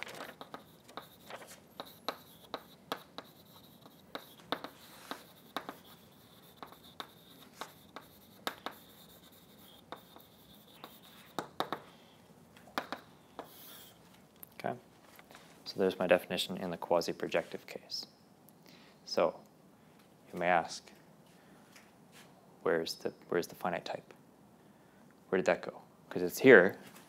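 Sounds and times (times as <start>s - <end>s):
chalk tapping and scraping on blackboard: 0.3s - 11.9s, 12.7s - 14.0s.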